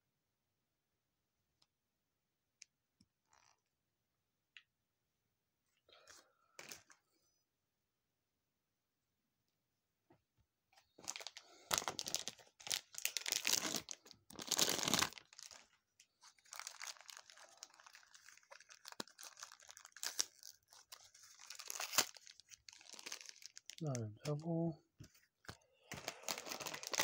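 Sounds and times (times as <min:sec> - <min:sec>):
paper and foil crinkling: 0:10.9 - 0:24.4, 0:25.5 - 0:27.0.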